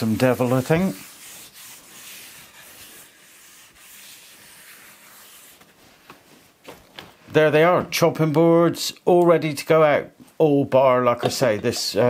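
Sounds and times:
cloth rubbing on wood: 0:00.0 - 0:06.9.

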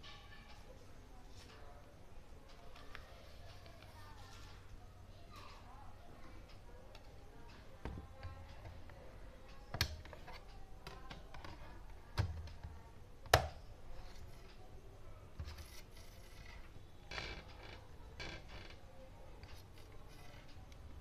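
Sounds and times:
light scraping: 0:15.4 - 0:16.8.

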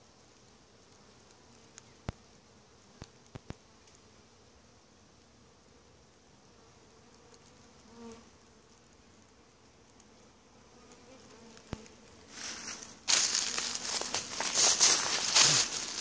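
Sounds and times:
bees buzzing faintly: 0:00.0 - 0:16.0
bee passing close: 0:10.3 - 0:16.0
footsteps crunching dry leaves: 0:12.3 - 0:16.0.

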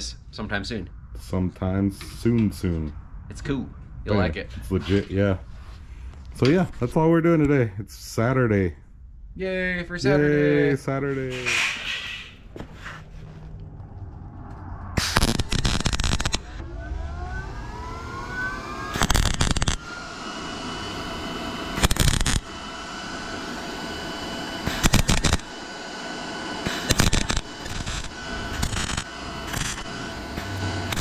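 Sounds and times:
faint machine whine: 0:00.0 - 0:31.0
welding arc sputtering: 0:11.2 - 0:12.5, 0:15.0 - 0:16.6, 0:18.6 - 0:31.0.

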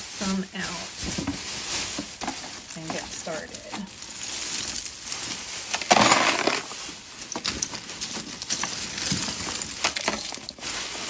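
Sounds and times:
plastic bag crinkling: 0:00.0 - 0:11.0
jewelry clattering into tub: 0:01.1 - 0:10.7.

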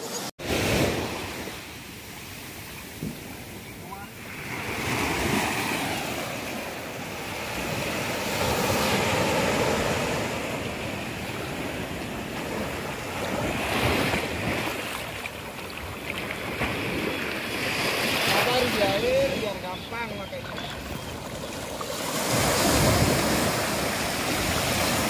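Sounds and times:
ocean surf washing in: 0:00.0 - 0:15.6, 0:16.5 - 0:25.0
wind buffeting microphone: 0:15.8 - 0:25.0.

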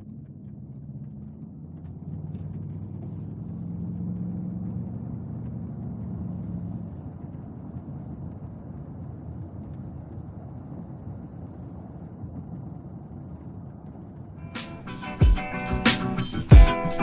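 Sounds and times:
car engine humming: 0:00.0 - 0:08.4, 0:14.4 - 0:17.0
tyre and road rumble: 0:00.0 - 0:17.0.

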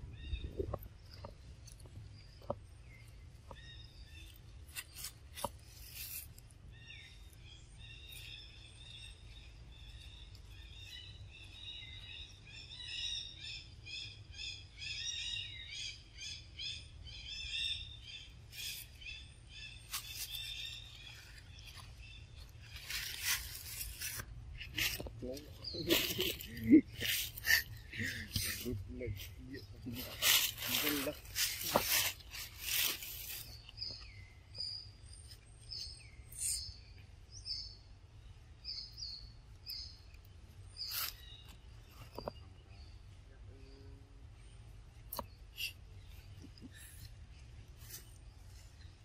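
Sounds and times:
bird chirping: 0:00.0 - 0:49.0
dry leaves crackling: 0:04.1 - 0:08.4, 0:19.7 - 0:34.0
leaves rustling: 0:04.1 - 0:09.1, 0:18.5 - 0:34.2, 0:40.7 - 0:42.2.

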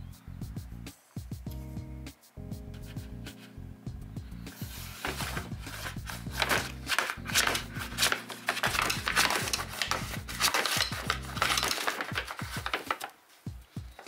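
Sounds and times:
paper bag crinkling: 0:04.7 - 0:13.4.

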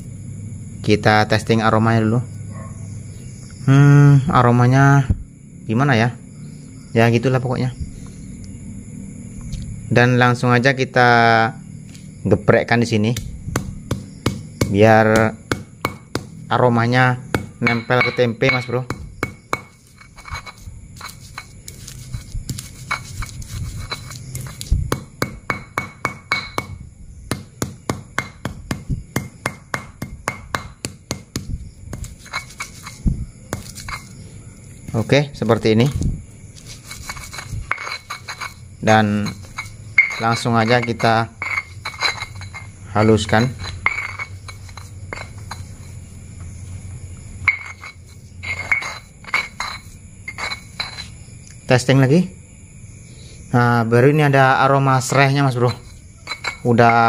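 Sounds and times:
stone pestle pounding in mortar: 0:13.2 - 0:16.4, 0:17.3 - 0:34.1, 0:36.9 - 0:45.9.

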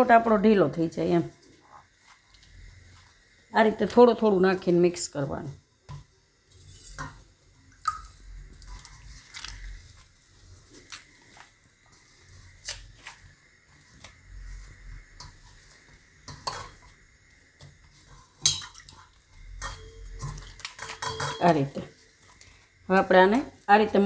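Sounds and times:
hands kneading dough: 0:08.5 - 0:16.2.

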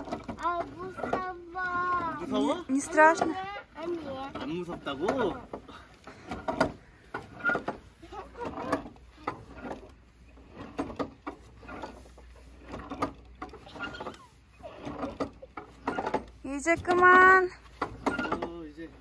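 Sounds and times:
swing chains creaking and clinking: 0:00.0 - 0:19.0.

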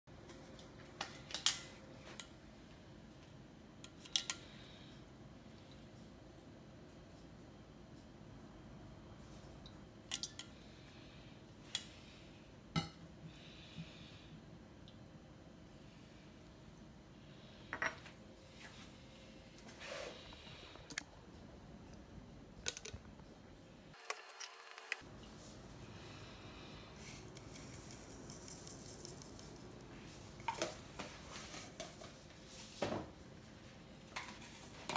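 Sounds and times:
faint background hum: 0:00.1 - 0:34.9.

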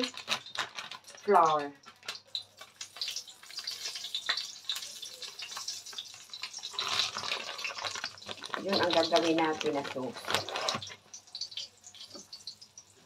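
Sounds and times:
plastic bag rustling: 0:00.0 - 0:04.0, 0:04.8 - 0:11.1
oil sizzling and popping: 0:00.0 - 0:13.0.

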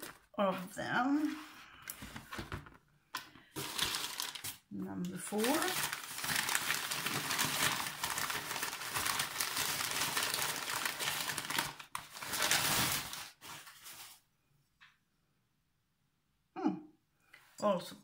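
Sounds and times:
wrapping paper crinkling: 0:00.0 - 0:02.6, 0:03.5 - 0:14.3.

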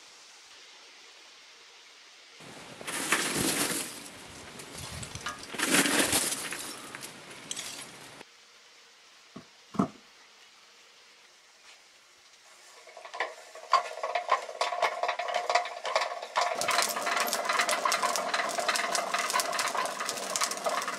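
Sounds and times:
coal and kindling crackling: 0:02.4 - 0:08.2, 0:12.5 - 0:20.9.

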